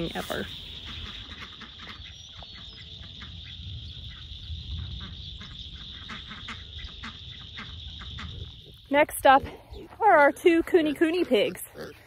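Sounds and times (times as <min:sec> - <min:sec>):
high-pitched insect chorus: 0:00.0 - 0:10.0
ducks calling: 0:00.0 - 0:12.0
wind rumble on microphone: 0:02.9 - 0:06.1, 0:06.7 - 0:10.0.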